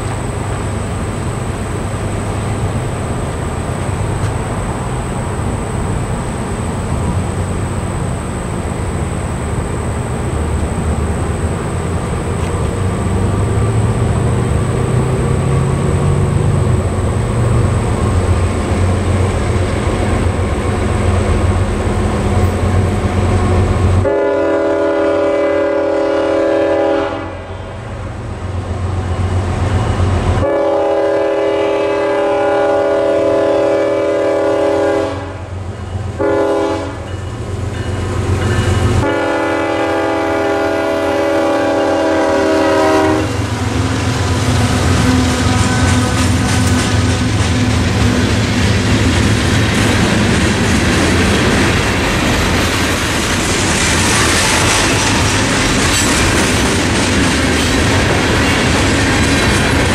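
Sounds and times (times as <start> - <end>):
freight train roar and rumble: 0.0 - 59.9
locomotive air horn chord: 24.0 - 27.8, 30.4 - 35.6, 36.2 - 37.1, 39.0 - 43.5.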